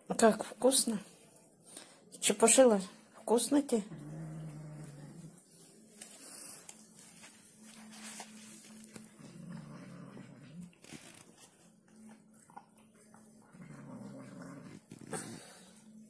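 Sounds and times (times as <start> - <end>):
cat growling: 3.9 - 5.4, 9.2 - 10.9, 13.5 - 15.6.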